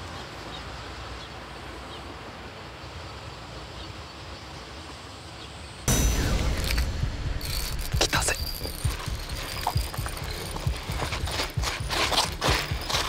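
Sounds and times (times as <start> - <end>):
sudden loud burst of noise: 5.9 - 10.1
low rumble: 5.9 - 12.1.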